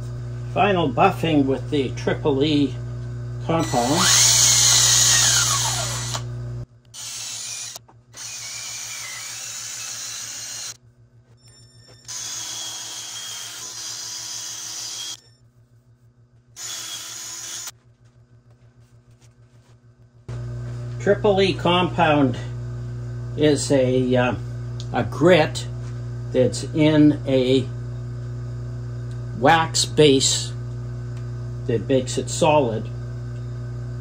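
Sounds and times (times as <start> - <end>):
cordless drill whine: 3.5 - 6.3, 7.0 - 10.8, 11.4 - 15.3, 16.6 - 17.7.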